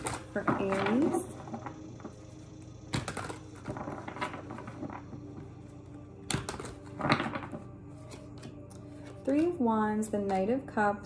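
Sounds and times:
cards slapping together: 2.9s - 5.0s, 6.3s - 9.5s
cards being shuffled: 2.9s - 5.4s, 6.3s - 9.6s.

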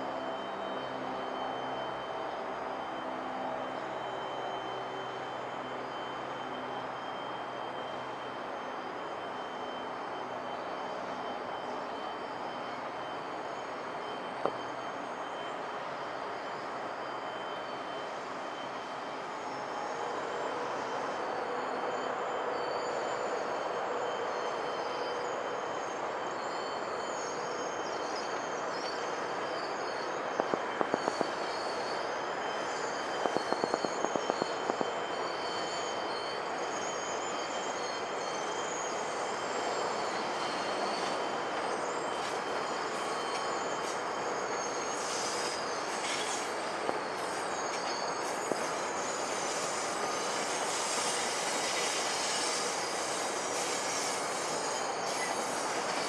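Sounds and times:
train wheels squealing: 0.0s - 56.0s
train rumble: 25.7s - 56.0s.

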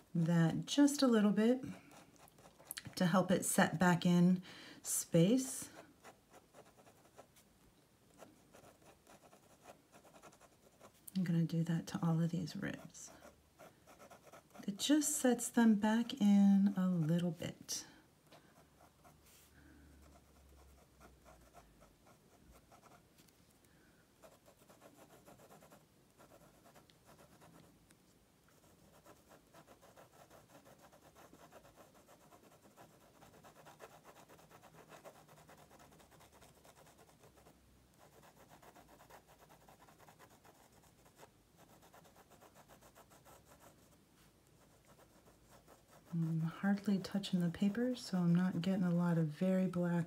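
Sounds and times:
pen scratching on paper: 5.7s - 7.3s, 8.2s - 11.0s, 12.8s - 15.0s, 24.2s - 27.7s, 28.5s - 47.0s.

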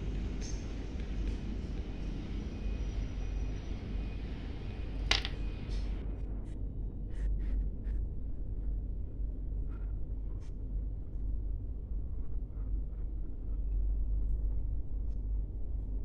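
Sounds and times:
crab legs tapping wood: 5.1s - 5.4s
shell clicking on wooden table: 5.1s - 5.4s.

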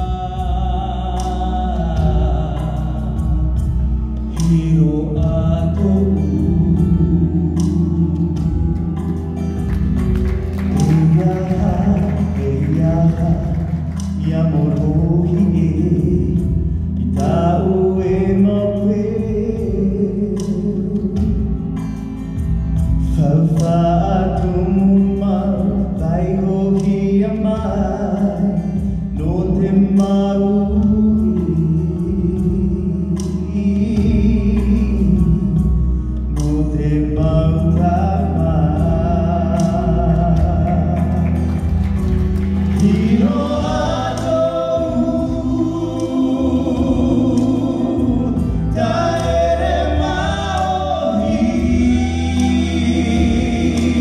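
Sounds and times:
man singing into microphone: 0.0s - 42.1s, 42.7s - 54.0s
amplified instrumental accompaniment: 0.0s - 54.0s.

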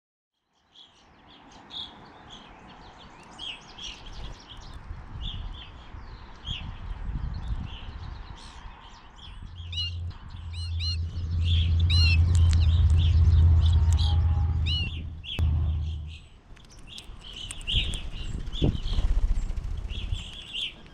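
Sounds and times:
finches chirping: 7.4s - 20.9s
low steady rumble: 9.4s - 16.5s.

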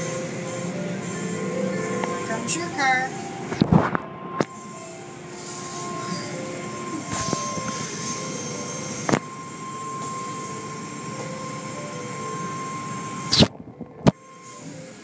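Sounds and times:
car wash machinery noise: 0.0s - 15.0s
constant whine: 0.0s - 15.0s.

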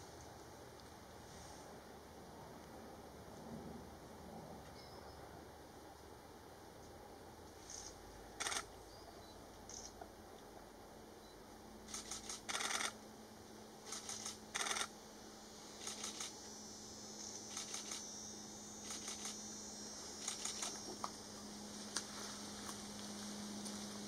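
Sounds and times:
camera shutter bursts: 7.6s - 8.7s, 11.9s - 13.0s, 13.9s - 14.9s, 15.8s - 16.4s, 17.5s - 18.0s, 18.8s - 19.4s, 20.2s - 20.8s.

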